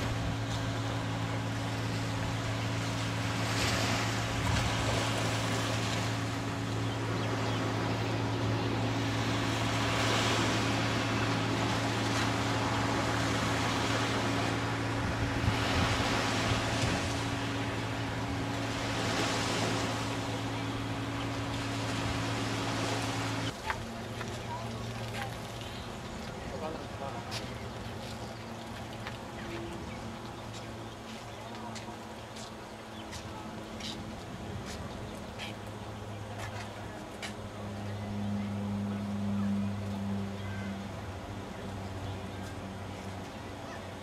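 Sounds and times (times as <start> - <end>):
ocean surf: 0.0 - 44.0
steady low hum: 0.0 - 44.0
wind on microphone: 14.7 - 18.5.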